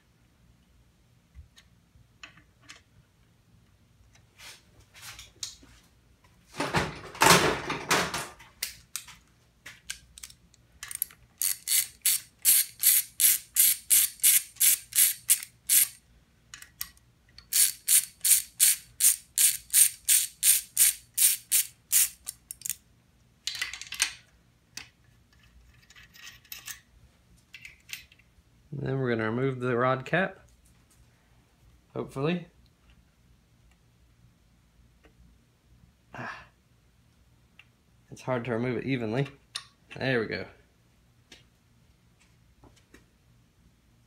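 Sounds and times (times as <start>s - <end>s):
hand ratchet clicking: 9.9s - 16.0s, 16.8s - 22.8s.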